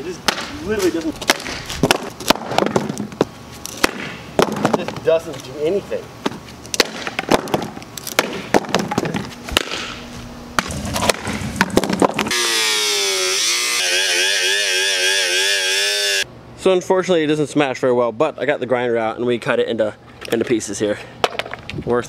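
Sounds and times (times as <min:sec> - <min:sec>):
angle grinder whine: 0:12.2 - 0:16.3.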